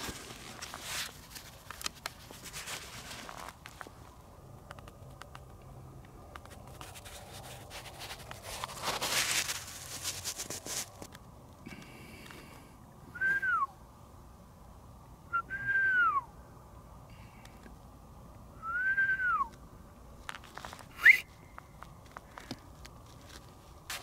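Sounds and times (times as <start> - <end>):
rising and falling whistles: 13.1 - 13.8, 15.3 - 16.3, 18.6 - 19.5, 20.9 - 21.6
sharp upward whistle: 13.2 - 13.7, 15.3 - 16.3, 18.6 - 19.5, 21.0 - 21.3.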